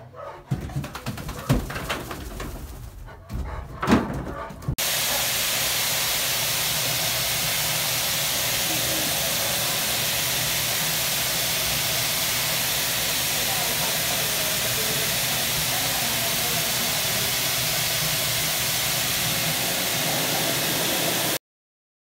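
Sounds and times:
dog blow dryer blowing air: 0:04.8 - 0:21.4.

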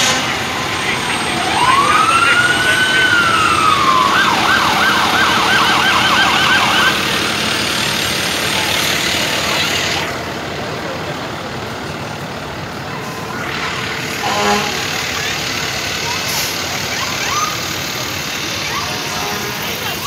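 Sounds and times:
truck engines: 0:00.0 - 0:20.0
vehicle siren wailing and yelping: 0:00.2 - 0:07.6, 0:16.0 - 0:20.0.

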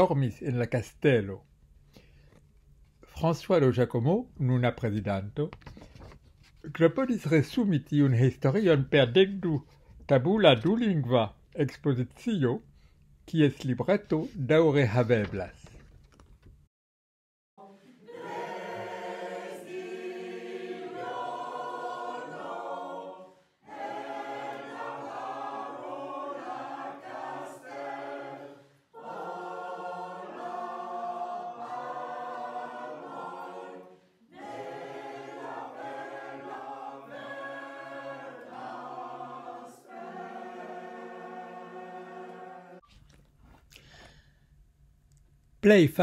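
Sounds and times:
choir singing: 0:17.6 - 0:42.8.

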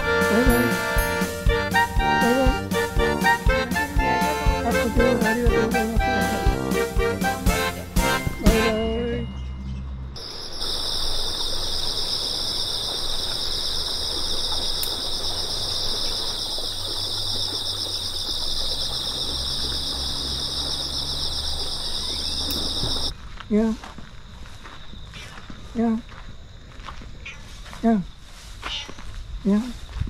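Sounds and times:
insects chirring: 0:10.2 - 0:30.0.

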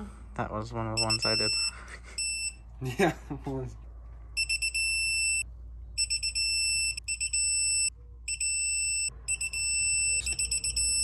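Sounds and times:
torque wrench beeping: 0:06.0 - 0:11.0.

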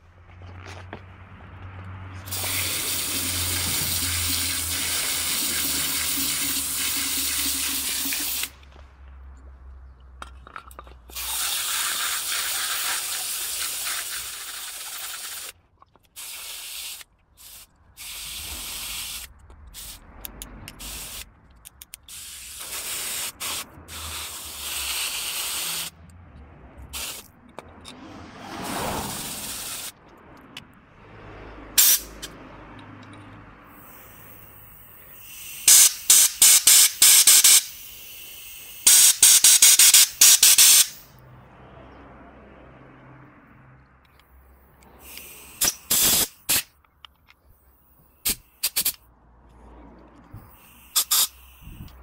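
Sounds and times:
hose nozzle spraying water: 0:02.3 - 0:08.6, 0:11.1 - 0:20.0, 0:29.0 - 0:29.9, 0:35.1 - 0:41.0, 0:45.0 - 0:46.7, 0:50.6 - 0:51.9.

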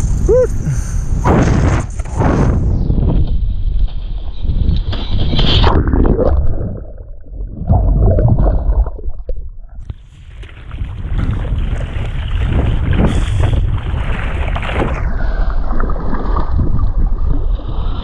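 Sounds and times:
muffled underwater gurgling: 0:05.6 - 0:10.0.

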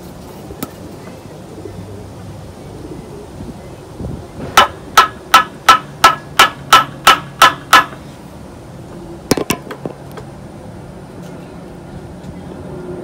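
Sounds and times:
tool tapping on metal: 0:04.6 - 0:08.0.

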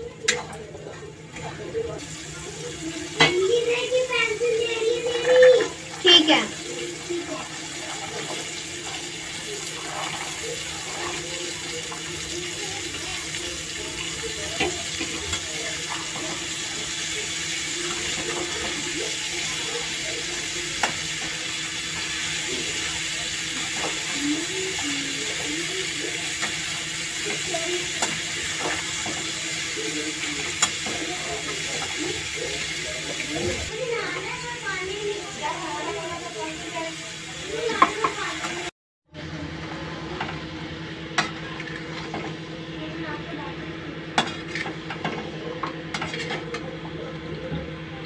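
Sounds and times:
vegetables sizzling in oil: 0:02.0 - 0:38.7.

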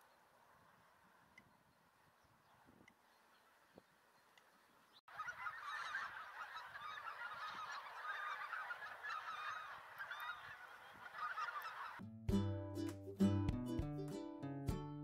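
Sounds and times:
geese honking: 0:05.1 - 0:12.0.

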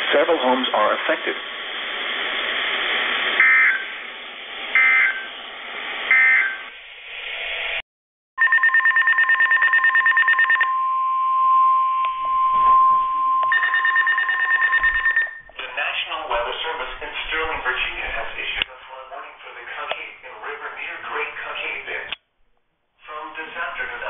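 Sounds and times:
data bursts: 0:04.8 - 0:05.3, 0:12.5 - 0:15.5
rapid two-tone electronic beeping: 0:04.8 - 0:05.3, 0:08.4 - 0:10.7, 0:13.5 - 0:15.6.

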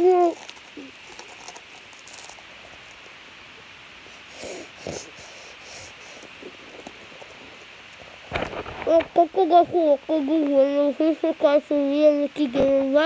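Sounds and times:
steady low hiss: 0:00.0 - 0:13.0
person chewing chips: 0:00.2 - 0:02.9.

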